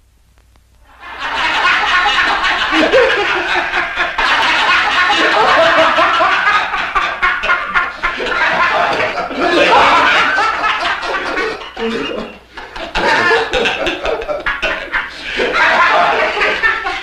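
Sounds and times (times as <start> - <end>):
men laughing loudly: 0.9 - 17.0.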